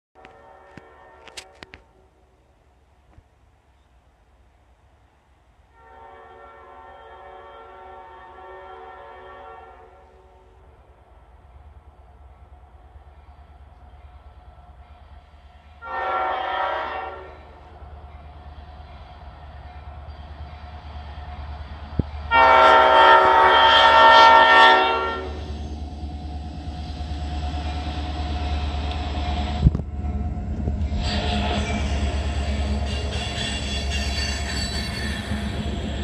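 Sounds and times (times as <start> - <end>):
train air horn blasts: 0.2 - 2.1, 5.7 - 10.6, 15.8 - 17.6, 22.3 - 25.5
locomotive engine rumble: 17.0 - 36.0.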